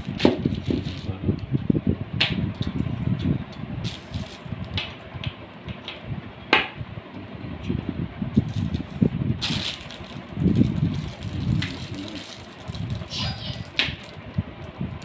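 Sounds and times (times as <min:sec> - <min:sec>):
plastic bags rustling and crinkling: 0:00.0 - 0:01.2, 0:03.8 - 0:04.5, 0:08.4 - 0:14.7.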